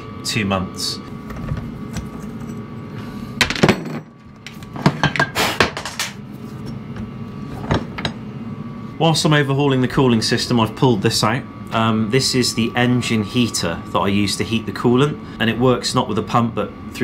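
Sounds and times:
metal parts clunking on workbench: 0:03.4 - 0:06.2.

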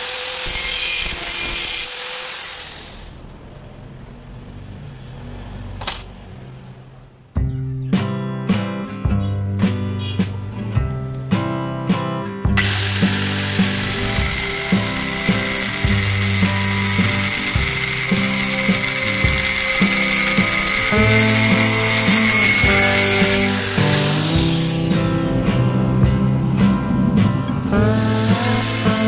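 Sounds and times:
angle grinder cutting steel: 0:00.0 - 0:03.3, 0:12.6 - 0:25.4, 0:27.7 - 0:29.0
guitar background music: 0:07.3 - 0:29.0.

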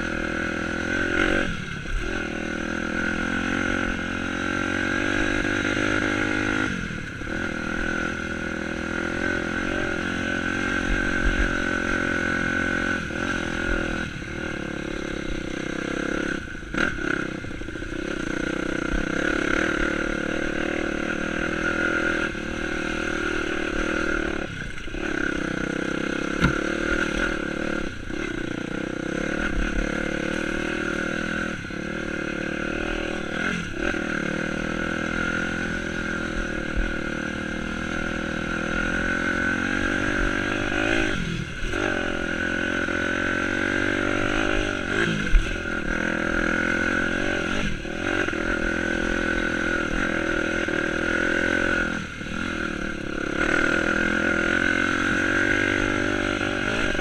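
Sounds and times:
dirt bike engine revving: 0:00.0 - 0:57.0
sharp knock: 0:26.4 - 0:26.6.

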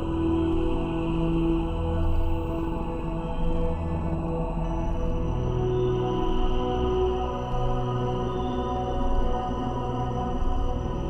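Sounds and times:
slow ambient music: 0:00.0 - 0:11.0.

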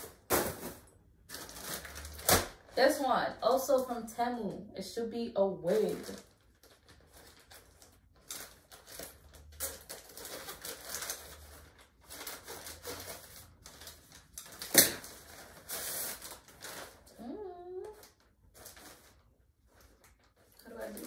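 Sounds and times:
plastic crinkling and rustling: 0:00.0 - 0:03.9, 0:05.6 - 0:21.0
scissors cutting plastic bag: 0:01.3 - 0:02.7, 0:05.7 - 0:19.2.

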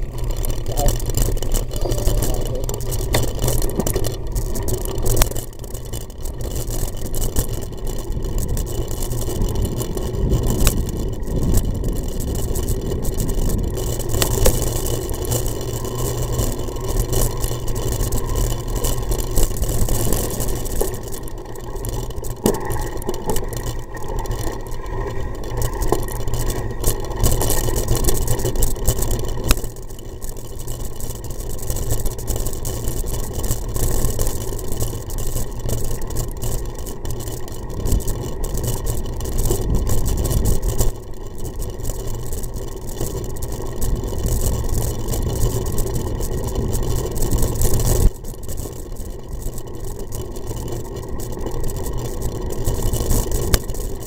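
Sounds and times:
bike knocking over bumps: 0:00.0 - 0:24.6
bike tyres crunching on gravel: 0:00.0 - 0:54.0
wind rumbling on microphone: 0:07.7 - 0:14.8.

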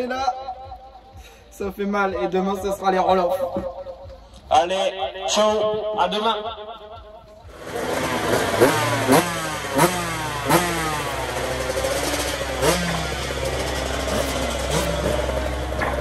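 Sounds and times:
dirt bike idling: 0:00.0 - 0:16.0
two-stroke engine revving: 0:07.4 - 0:16.0.

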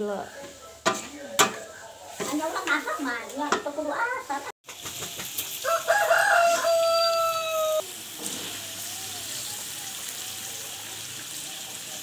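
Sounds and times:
rooster crowing: 0:05.6 - 0:07.9.

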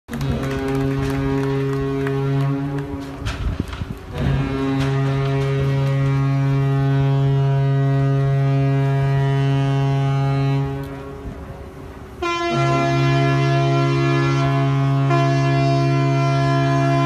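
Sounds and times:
ship's horn blasts: 0:00.1 - 0:17.0.

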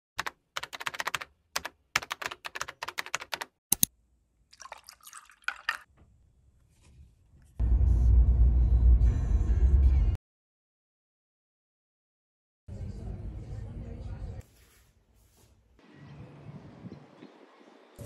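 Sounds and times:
typing on a keyboard: 0:00.2 - 0:03.5
drink poured over ice: 0:04.5 - 0:05.9
road noise inside car: 0:07.6 - 0:09.9.

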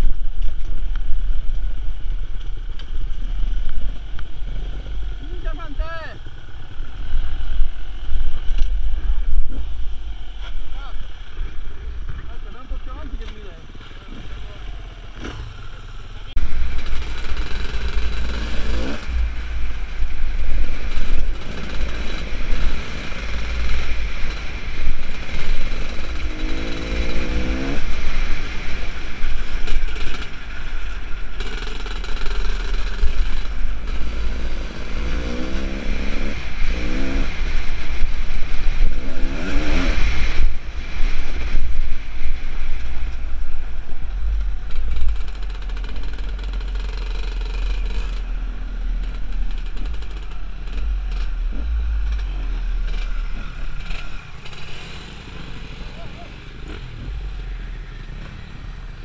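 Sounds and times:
dirt bike engine revving: 0:14.0 - 0:42.5
wind rumble on microphone: 0:16.4 - 0:54.6.

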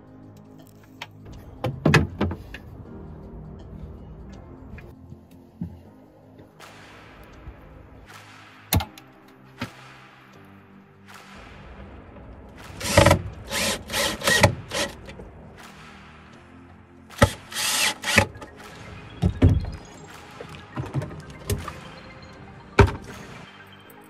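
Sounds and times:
background music: 0:00.0 - 0:24.0
cordless drill driving screws: 0:12.8 - 0:15.0, 0:17.2 - 0:18.3.

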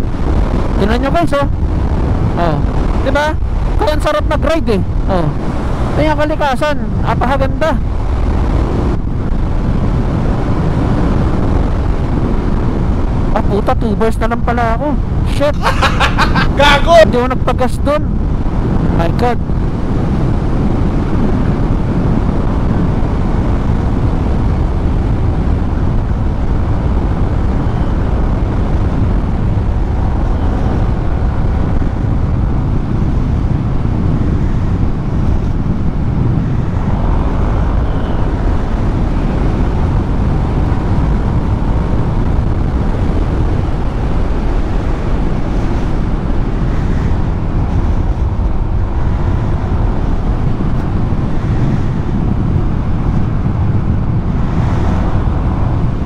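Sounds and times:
wind rush over microphone: 0:00.0 - 0:56.0.

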